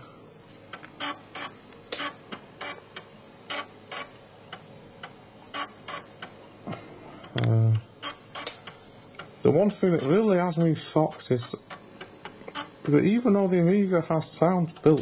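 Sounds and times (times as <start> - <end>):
floppy drive clicking: 0.7 - 13.2, 14.4 - 15.0.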